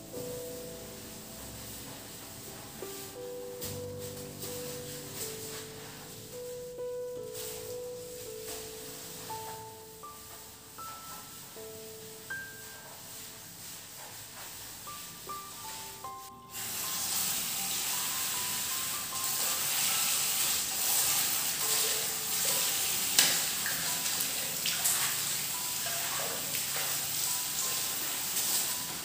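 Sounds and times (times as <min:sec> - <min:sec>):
tap water running into basin: 0:16.5 - 0:29.0.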